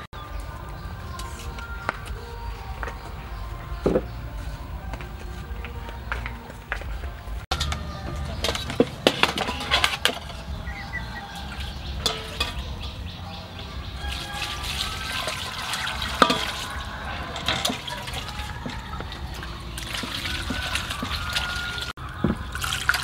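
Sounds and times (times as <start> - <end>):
metal bowls knocking on basin: 7.5 - 14.4, 16.0 - 22.4
water sloshing in metal basin: 7.5 - 23.0.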